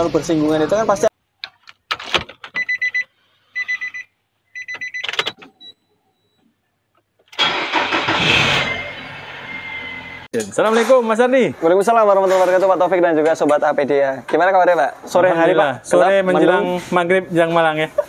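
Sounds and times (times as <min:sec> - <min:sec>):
car engine starting and running: 0:07.3 - 0:10.3.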